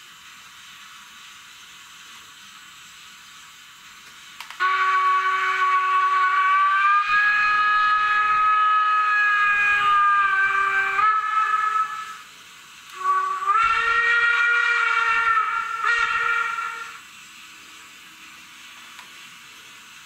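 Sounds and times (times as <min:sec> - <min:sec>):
faint hiss: 0:00.0 - 0:20.0
steam whistle from small speaker: 0:04.6 - 0:12.3, 0:12.9 - 0:17.1.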